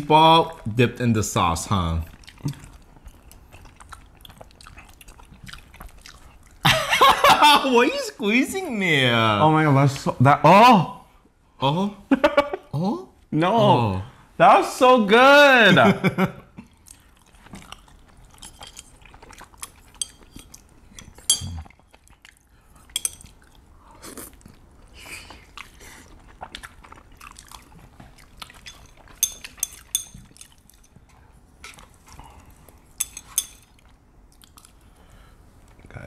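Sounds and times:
people chewing and slurping noodles: 1.4s - 6.8s, 16.5s - 36.0s
chopsticks clicking against dishes: 28.6s - 30.9s, 33.0s - 33.7s.

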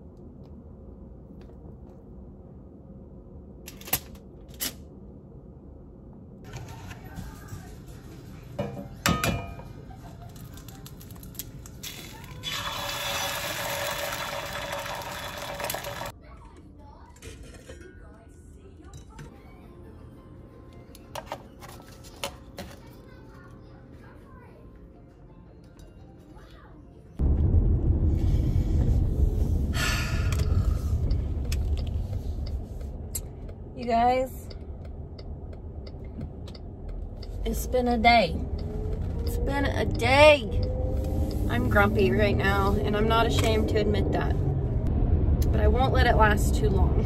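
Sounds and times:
egg sizzling in pan: 12.3s - 16.1s.

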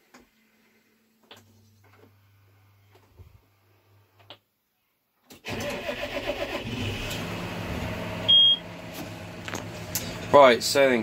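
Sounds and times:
diesel engine starting and running: 5.4s - 11.0s
short electronic beep: 8.3s - 8.6s.

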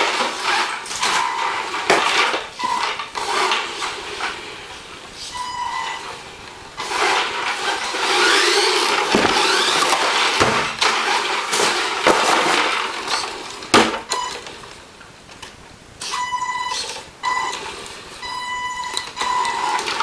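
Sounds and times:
tyres rumbling on tiles: 6.8s - 13.2s
sharp knocks: 9.2s - 10.8s.

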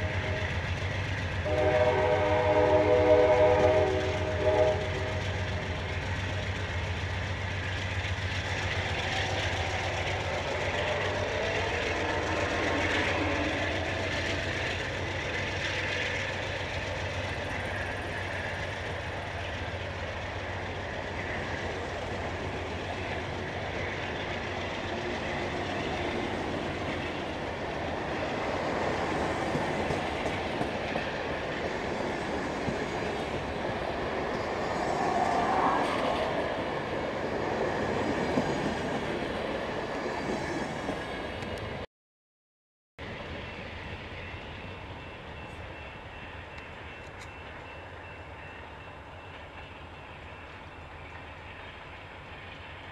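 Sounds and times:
train wheels rumbling on rail: 0.0s - 41.9s, 43.0s - 52.9s
wheels clickety-clack: 3.9s - 41.8s.

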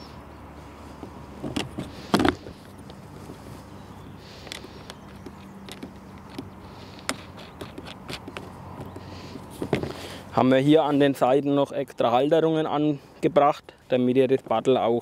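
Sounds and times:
paddle clicking and knocking: 4.4s - 10.0s.

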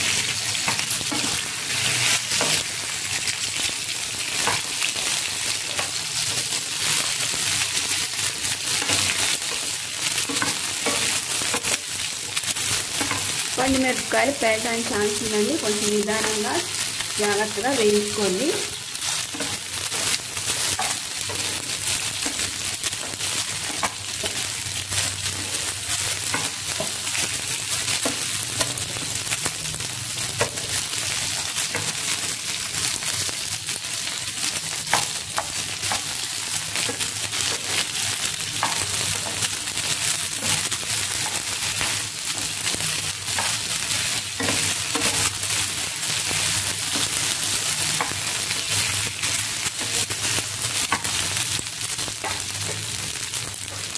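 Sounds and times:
spatula stirring in pan: 0.0s - 29.5s, 30.1s - 53.9s
chillies sizzling in hot oil: 0.0s - 53.9s.

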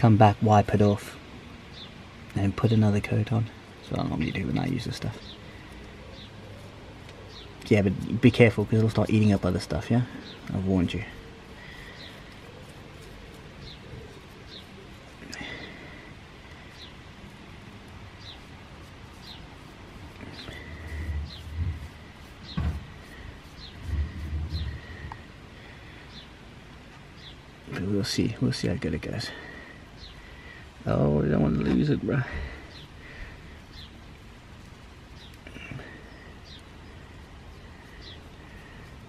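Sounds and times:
bird chirping: 1.7s - 17.4s, 18.2s - 25.2s, 25.9s - 26.4s, 27.1s - 27.8s, 29.1s - 30.6s, 31.4s - 34.2s, 35.1s - 39.0s
rustling: 3.9s - 25.3s
low bumps: 20.9s - 25.3s.

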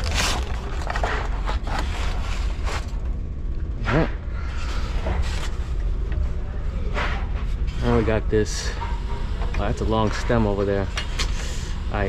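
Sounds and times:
steady low hum: 0.0s - 12.0s
wrench clinking and scraping metal: 8.5s - 12.0s.

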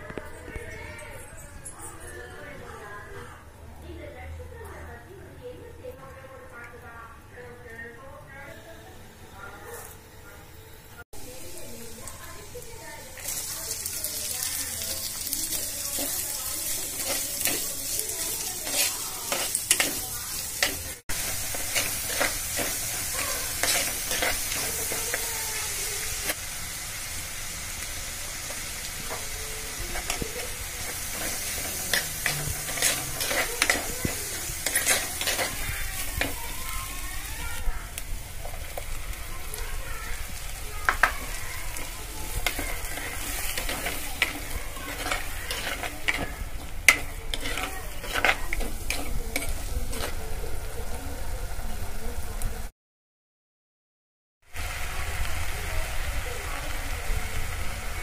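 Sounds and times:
onions sizzling in hot oil: 11.2s - 52.7s, 54.4s - 58.0s
steel spoon scraping a pot: 15.6s - 25.3s, 29.9s - 36.4s, 41.8s - 50.3s.

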